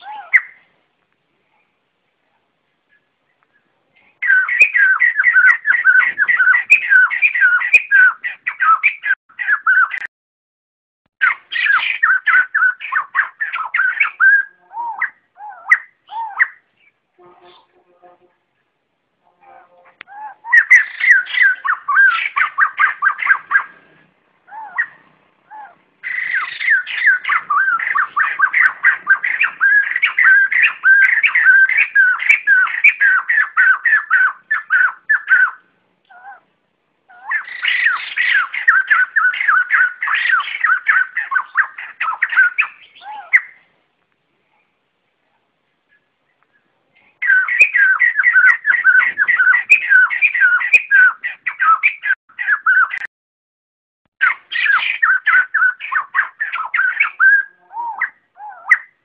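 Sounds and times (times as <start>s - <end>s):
bird rapid chattering call: 20.4s - 23.8s, 26.0s - 35.6s, 47.2s - 53.1s.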